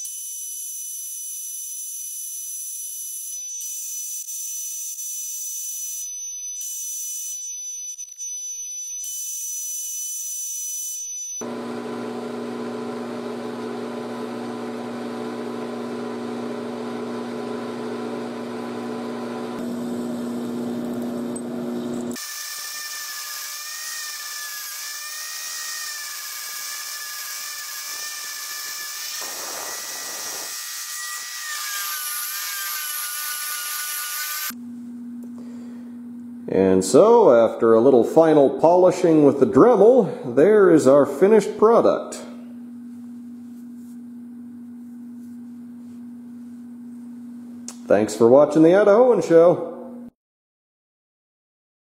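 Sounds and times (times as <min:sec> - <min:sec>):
rotary tool whining: 0:00.0 - 0:34.6
metal lathe humming: 0:11.4 - 0:34.6
high-pitched machine whine: 0:21.3 - 0:34.6.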